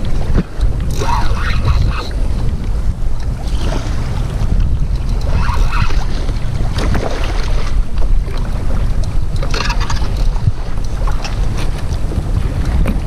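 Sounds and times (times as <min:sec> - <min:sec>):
water splashing against plastic hull: 0:00.0 - 0:13.0
wind buffeting microphone: 0:00.0 - 0:13.0.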